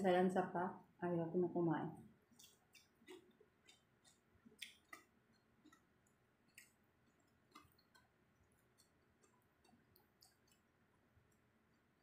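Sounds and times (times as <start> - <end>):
chewing mouth clicks and smacks: 2.3 - 10.7.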